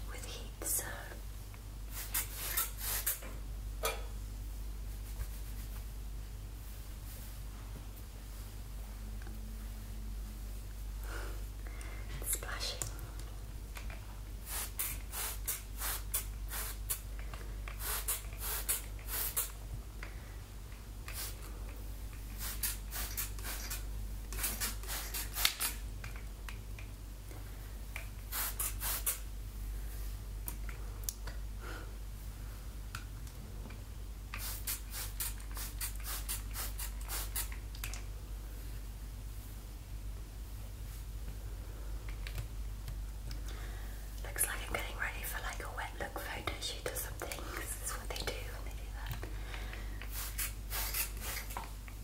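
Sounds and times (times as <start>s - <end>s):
spray bottle spritzing: 2.0s - 3.2s, 14.5s - 17.0s, 17.8s - 19.5s, 22.4s - 25.8s, 28.3s - 29.2s, 34.4s - 37.6s, 50.1s - 51.6s.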